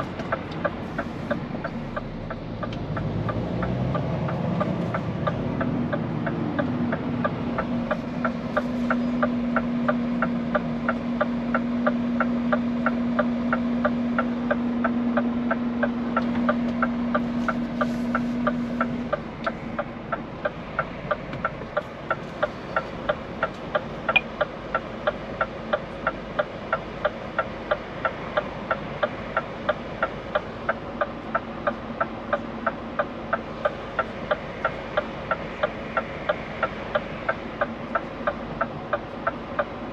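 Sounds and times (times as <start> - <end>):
truck engine hum: 0.0 - 39.9
turn signal ticking: 0.0 - 39.9.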